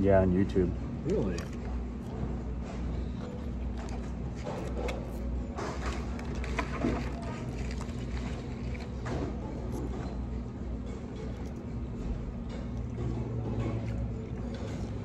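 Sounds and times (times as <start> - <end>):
low room hum: 0.0 - 15.0
food packaging rustling: 3.3 - 9.8.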